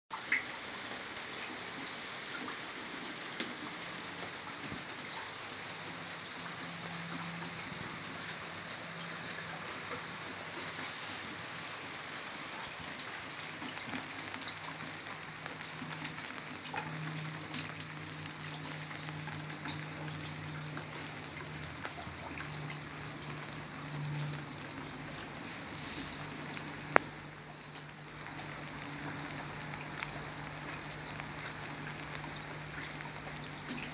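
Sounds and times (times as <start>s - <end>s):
rain on pavement: 0.1s - 33.9s
drops ticking: 26.1s - 33.9s.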